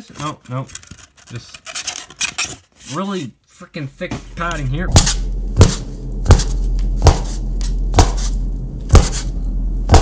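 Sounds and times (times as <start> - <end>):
fist knocking on styrofoam: 5.0 - 7.3, 7.9 - 8.3, 8.9 - 9.3.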